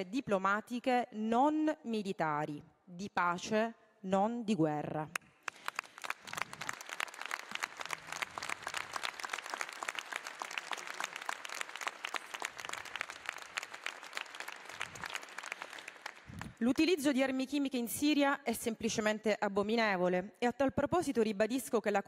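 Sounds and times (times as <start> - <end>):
crowd applauding: 5.4 - 16.6.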